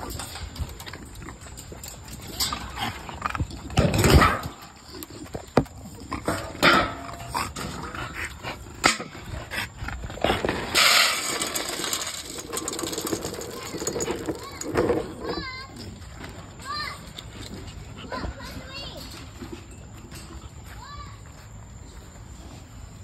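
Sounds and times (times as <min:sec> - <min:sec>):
dry kibble rustling: 0:10.0 - 0:19.4.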